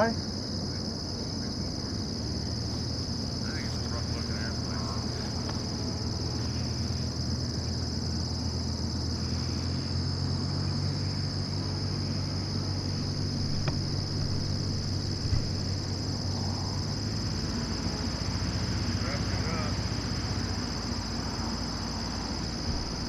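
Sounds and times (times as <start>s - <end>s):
high-pitched insect drone: 0.0s - 23.0s
plane engine humming: 0.2s - 23.0s
soft thump: 13.3s - 16.0s.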